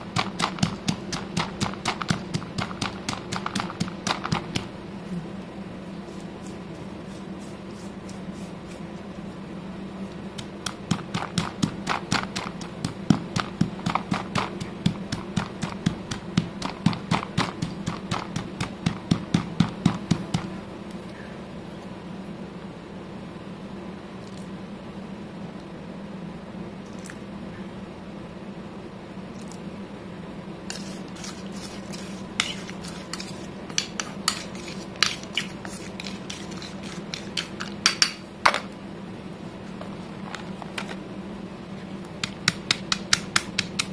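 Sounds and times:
stone pestle pounding in mortar: 0.1 - 4.7, 10.4 - 20.5, 30.7 - 38.2, 42.2 - 43.9.

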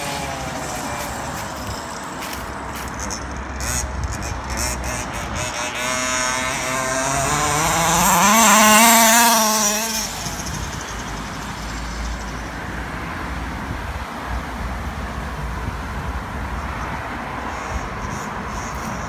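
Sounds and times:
model car engine revving: 0.0 - 12.2.

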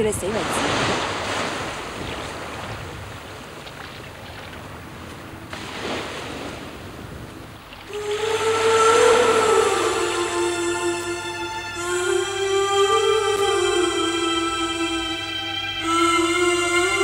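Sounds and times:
ocean surf washing onto shore: 0.0 - 14.8
background music held note: 7.9 - 17.0.

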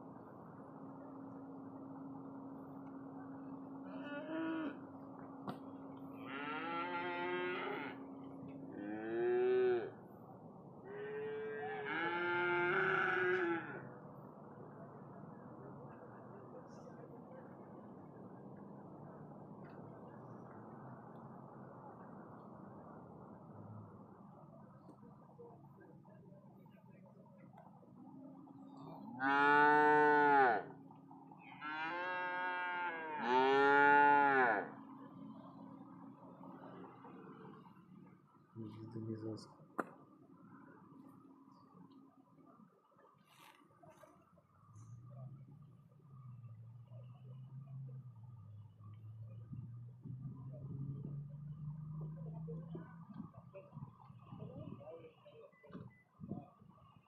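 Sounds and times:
cattle mooing: 3.8 - 4.9, 6.1 - 10.0, 10.8 - 13.8, 28.8 - 34.9.

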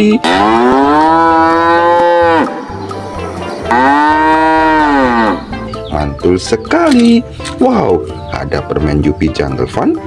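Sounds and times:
cow mooing: 0.1 - 5.6.

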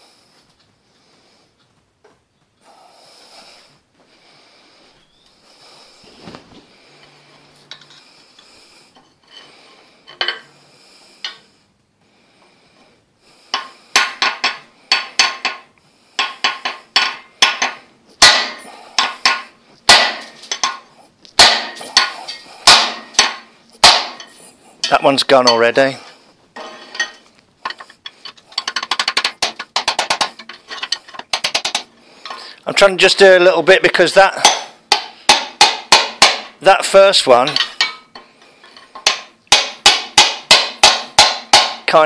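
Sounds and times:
hammer striking steel bar: 13.5 - 20.8, 21.4 - 25.7, 34.4 - 36.6, 39.0 - 42.0.

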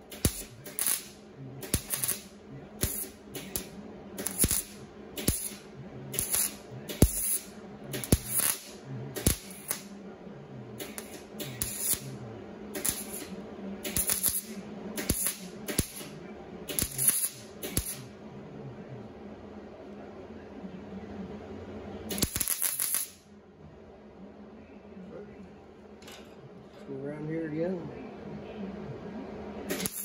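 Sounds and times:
welder crackling tack bursts: 0.0 - 9.9, 10.8 - 18.1, 22.1 - 23.2, 29.7 - 30.0
welder hum: 0.0 - 23.4, 26.9 - 30.0.

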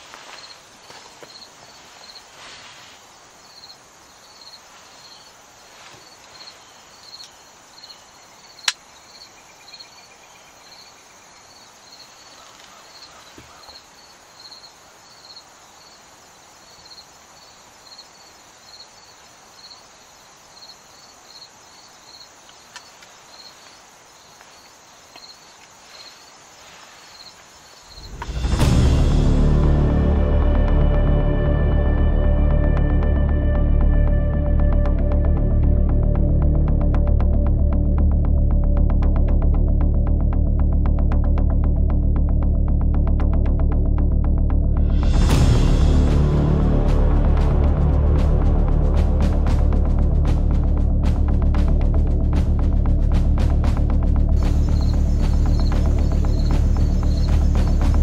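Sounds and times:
insect chirping: 0.0 - 28.6, 48.2 - 58.0
sharp click: 8.6 - 8.8.

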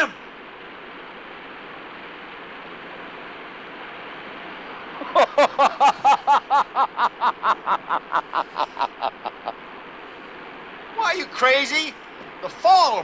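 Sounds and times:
steady rushing hiss: 0.0 - 13.0
man laughing: 5.0 - 9.6.

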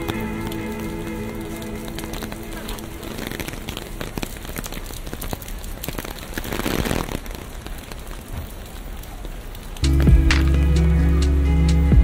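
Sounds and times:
rain drops ticking: 0.0 - 12.0.

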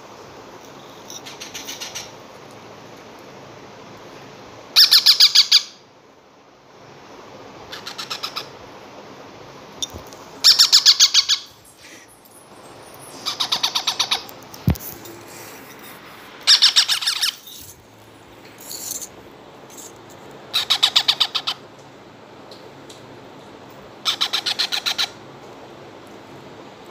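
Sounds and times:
parrot chicks begging calls: 4.8 - 5.8, 7.7 - 8.5, 10.4 - 12.0, 13.0 - 14.4, 15.4 - 17.8, 20.5 - 21.7, 24.0 - 25.2.

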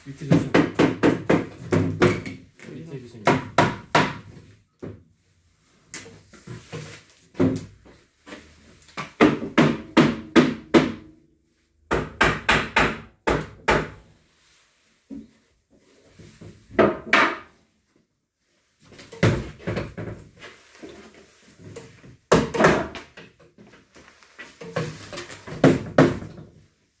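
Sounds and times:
hard knocks on wood: 0.3 - 2.4, 3.2 - 4.3, 9.1 - 11.1, 11.9 - 14.0, 25.5 - 26.4.

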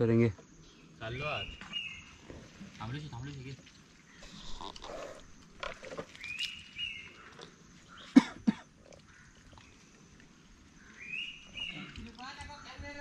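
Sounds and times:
twigs and brush rustling: 1.6 - 8.1.

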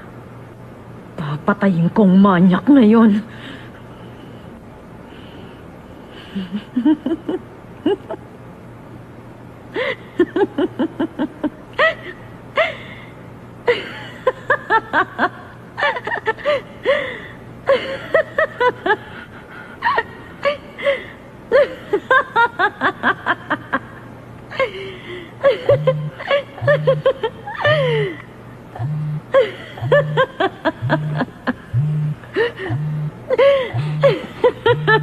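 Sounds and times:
person giggling: 6.3 - 8.2, 24.5 - 35.0
low hum: 25.4 - 35.0.

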